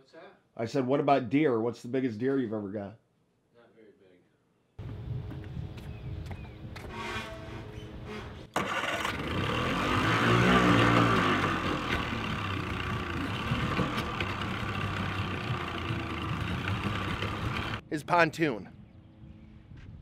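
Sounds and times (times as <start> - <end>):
outboard motor running: 8.6 - 17.8.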